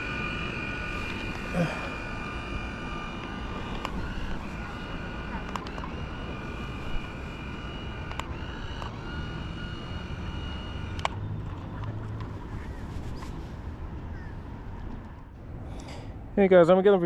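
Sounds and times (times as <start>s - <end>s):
sharp clicks: 0.0s - 12.3s
model boat motor whining: 0.0s - 13.5s.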